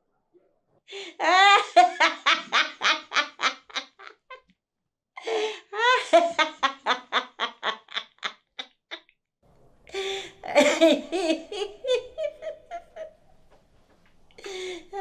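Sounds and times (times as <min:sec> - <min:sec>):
elderly woman laughing loudly: 0:01.2 - 0:04.4, 0:05.2 - 0:09.0, 0:10.0 - 0:13.2.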